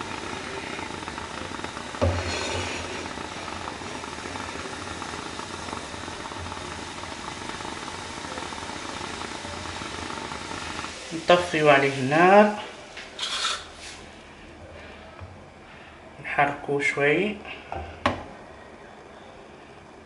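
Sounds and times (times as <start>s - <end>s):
water boiling in a pan: 0.0s - 16.0s
spatula stirring pan: 1.6s - 4.2s.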